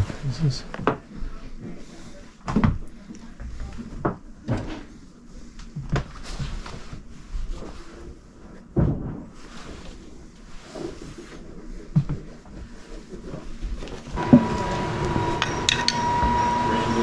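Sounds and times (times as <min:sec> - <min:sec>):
steady hum: 0:14.2 - 0:17.0.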